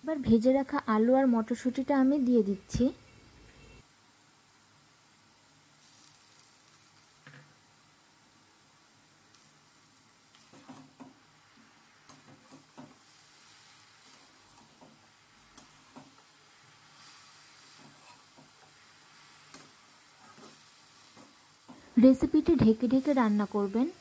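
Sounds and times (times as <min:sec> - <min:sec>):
vegetables sizzling in a pan: 0:00.0 - 0:24.0
spatula scraping a pan: 0:12.0 - 0:21.9.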